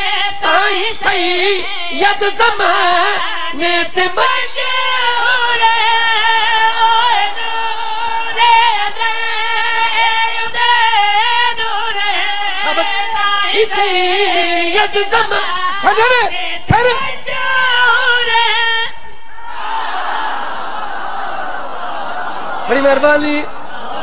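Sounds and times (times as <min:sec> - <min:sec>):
high solo voice singing: 0:08.4 - 0:19.0
crowd noise: 0:18.9 - 0:24.0.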